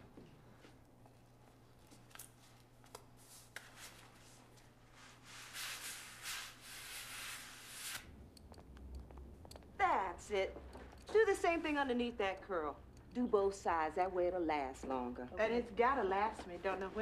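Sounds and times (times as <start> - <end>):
scrubbing tiled floor: 3.2 - 8.0.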